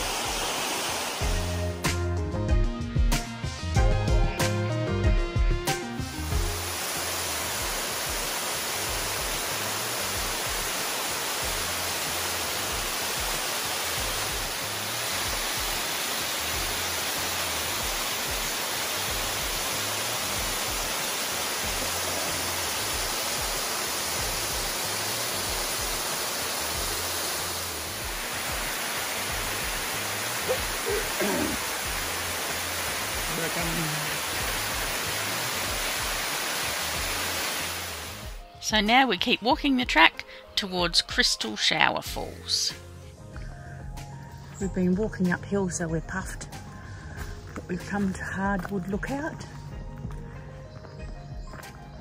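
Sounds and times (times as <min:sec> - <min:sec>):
waterfall rushing: 0:00.0 - 0:01.4, 0:06.2 - 0:38.4.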